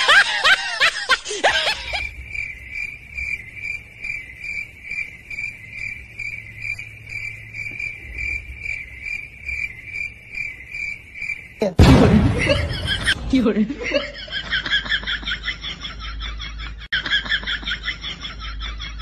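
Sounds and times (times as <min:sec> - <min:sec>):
cricket chirping: 0:00.0 - 0:13.2.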